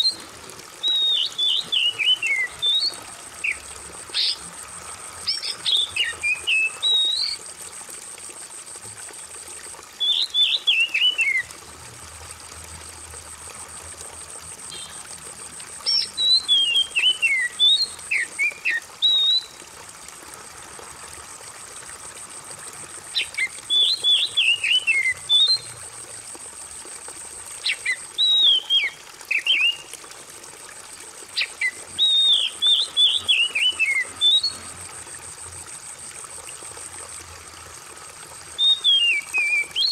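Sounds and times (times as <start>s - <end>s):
trickle of running water: 0.0s - 39.9s
bird whistled song: 0.8s - 3.6s, 5.3s - 7.4s, 10.0s - 11.5s, 14.7s - 15.0s, 15.8s - 19.6s, 23.2s - 25.7s, 27.6s - 29.9s, 31.4s - 34.6s, 38.6s - 39.9s.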